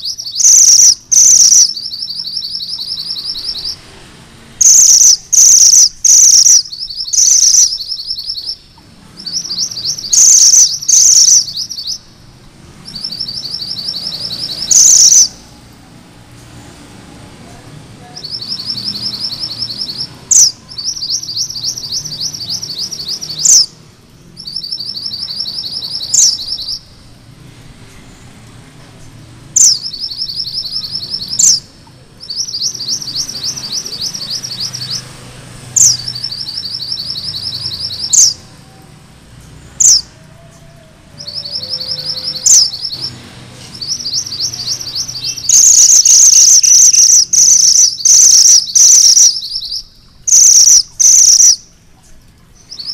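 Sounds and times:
sharp upswept bird whistles: 0.0s - 3.8s, 4.6s - 12.1s, 12.8s - 15.4s, 43.8s - 51.7s
bird singing rolling trills: 0.0s - 16.2s, 17.5s - 27.2s, 29.0s - 52.9s.

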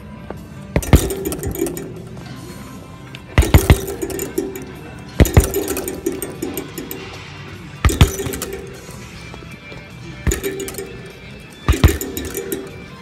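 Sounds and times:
punches smacking a bag: 0.8s - 1.8s, 3.4s - 4.6s, 5.2s - 6.2s, 7.8s - 8.8s, 11.6s - 12.6s.

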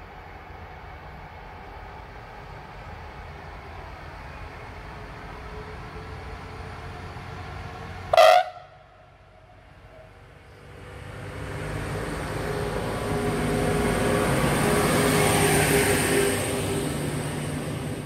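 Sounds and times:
train approaching: 0.0s - 18.0s
train horn blast: 8.1s - 8.9s.

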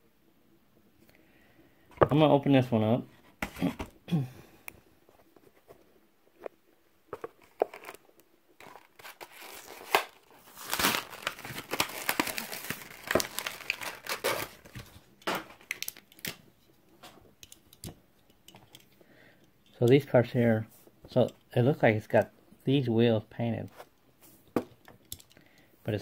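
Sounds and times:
plastic packaging crinkling: 7.2s - 16.4s
card tearing: 8.6s - 14.9s.

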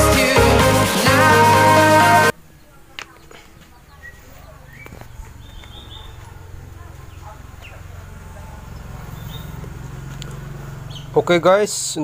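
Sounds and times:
bird chirps: 2.5s - 6.4s, 8.6s - 11.3s
small engine idling: 6.5s - 12.0s.

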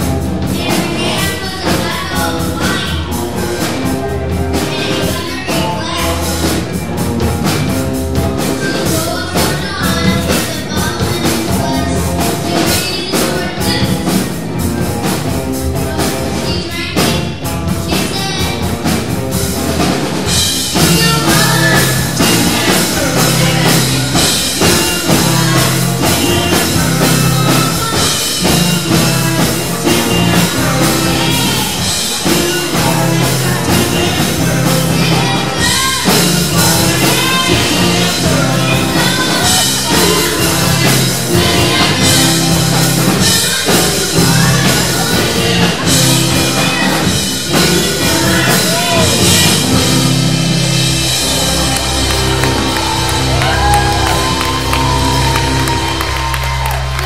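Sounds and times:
bass guitar: 0.0s - 57.0s
drum kit: 0.0s - 57.0s
electric guitars: 0.0s - 57.0s
keyboard playing: 0.0s - 57.0s
congas: 19.7s - 57.0s.

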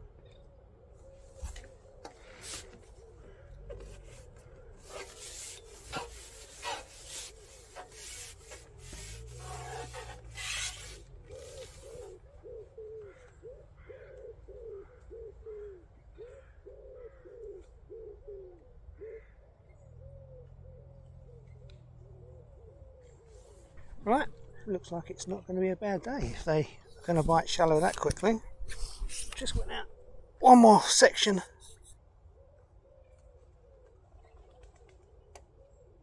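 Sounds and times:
fishing pole sections scraping: 2.3s - 3.0s, 3.7s - 12.1s, 26.9s - 29.9s.

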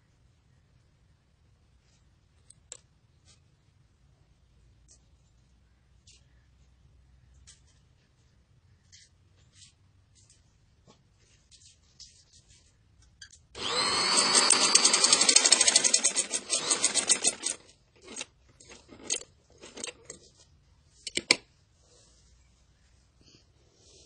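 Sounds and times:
sewing machine running: 13.6s - 19.9s.

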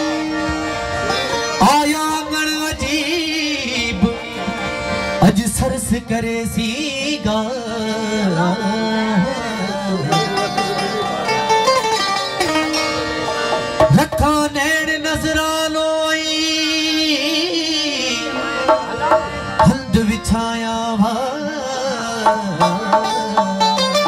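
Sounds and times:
harmonium: 0.0s - 24.0s
man singing long note: 5.3s - 11.5s, 14.0s - 24.0s
barrel drum playing: 13.5s - 14.4s, 22.2s - 24.0s.

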